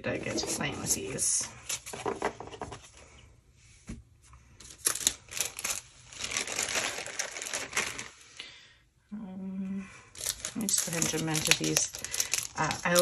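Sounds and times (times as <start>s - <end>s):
packaging crinkling and rustling: 4.6s - 8.4s, 10.1s - 13.0s.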